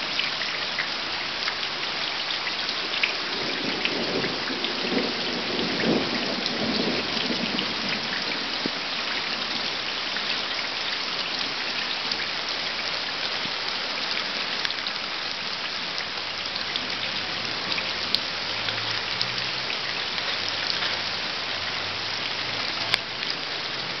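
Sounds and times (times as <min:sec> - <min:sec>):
steady rain falling: 0:00.0 - 0:24.0
thunder rumbling: 0:03.3 - 0:08.8.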